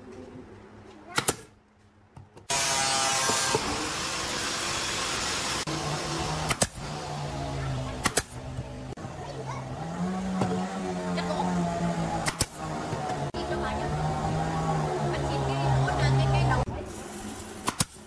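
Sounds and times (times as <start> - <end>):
nail gun shots: 1.2 - 1.5, 6.4 - 6.8, 8.0 - 8.4, 12.2 - 12.6, 17.6 - 18.0.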